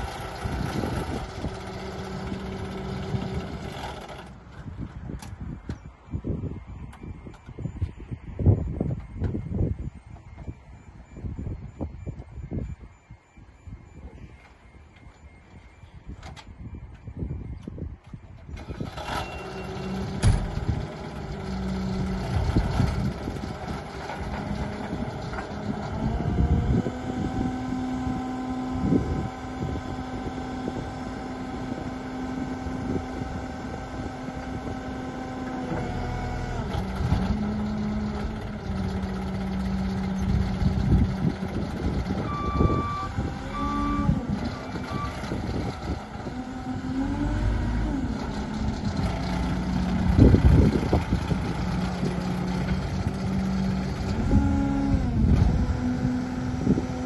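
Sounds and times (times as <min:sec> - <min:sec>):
reversing alarm beeps: 0:00.0 - 0:46.3
diesel engine running: 0:00.0 - 0:57.0.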